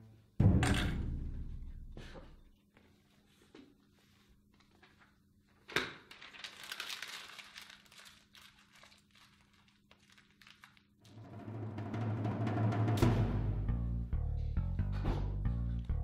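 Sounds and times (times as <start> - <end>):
paper crumpling: 4.5 - 11.1.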